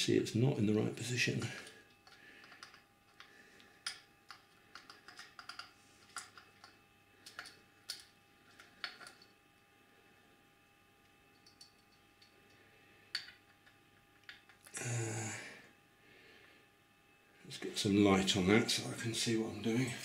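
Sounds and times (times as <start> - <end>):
small metal parts clicking: 2.0 - 9.3, 11.3 - 12.3, 13.1 - 14.7.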